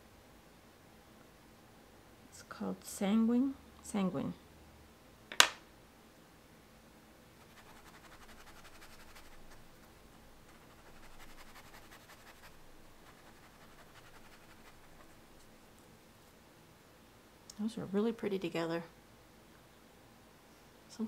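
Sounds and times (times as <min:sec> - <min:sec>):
paintbrush brushing on paper: 0:07.4 - 0:15.6.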